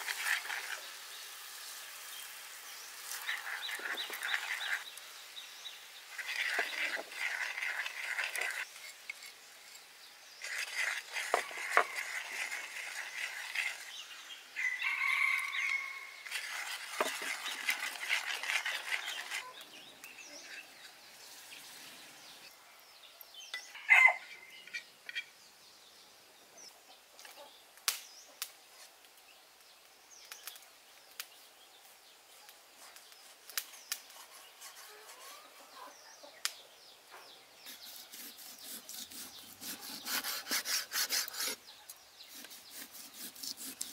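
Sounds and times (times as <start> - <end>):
bird calls: 2.8 - 9.3.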